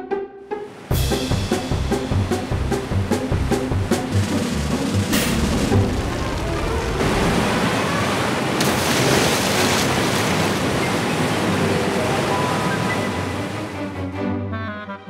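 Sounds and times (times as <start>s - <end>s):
cartoon gushing water rush: 0.9s - 13.9s.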